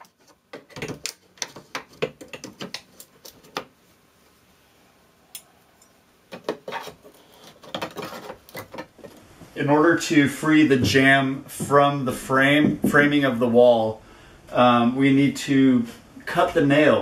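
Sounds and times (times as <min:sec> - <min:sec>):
hand tools tapping and knocking: 0:00.0 - 0:03.7, 0:06.3 - 0:09.2, 0:12.6 - 0:13.1.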